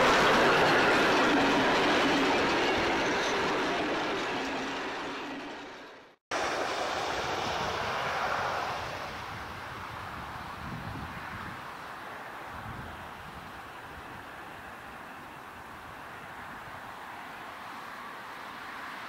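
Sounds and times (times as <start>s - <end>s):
train carriages rolling on rails: 0.0s - 6.2s.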